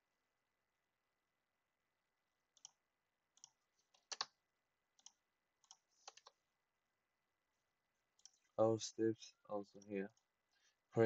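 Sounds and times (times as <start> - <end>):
mouse and keyboard clicks: 3.4 - 4.3, 5.0 - 6.4.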